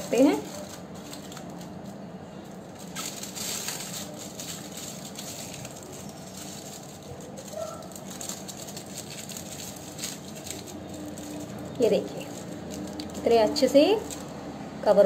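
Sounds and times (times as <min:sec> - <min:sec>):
aluminium foil crinkling: 0:00.0 - 0:14.4.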